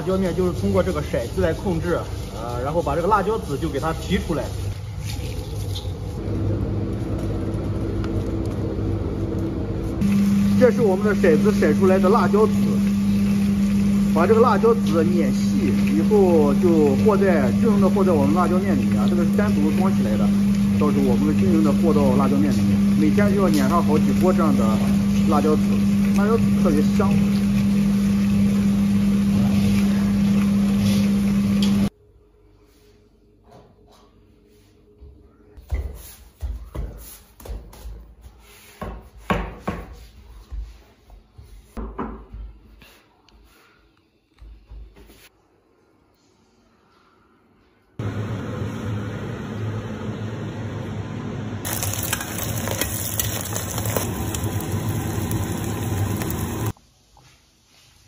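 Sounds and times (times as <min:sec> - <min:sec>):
food sizzling in hot oil: 0:00.0 - 0:04.8, 0:10.0 - 0:31.9, 0:51.6 - 0:56.8
motor hum: 0:05.7 - 0:31.9, 0:48.0 - 0:56.7.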